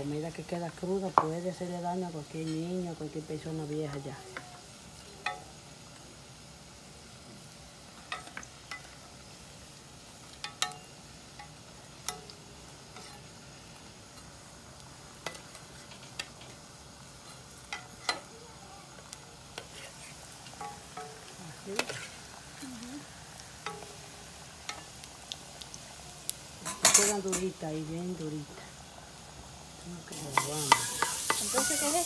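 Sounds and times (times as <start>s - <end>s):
faint frying sizzle: 0.0s - 32.0s
metal spoon clinking on pan: 10.4s - 12.4s, 26.6s - 27.5s, 30.3s - 31.7s.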